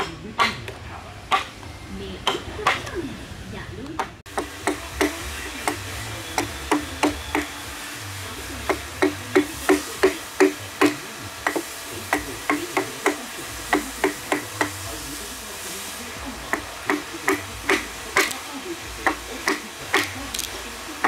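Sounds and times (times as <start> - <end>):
mallet striking chisel into log: 4.3 - 7.6, 8.6 - 14.8.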